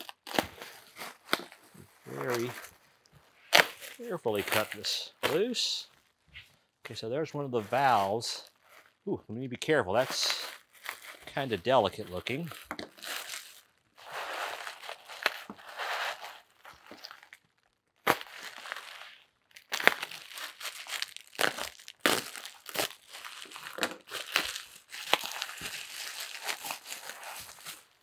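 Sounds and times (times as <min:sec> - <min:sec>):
bubble wrap crinkling: 0:00.0 - 0:09.1, 0:09.8 - 0:28.0.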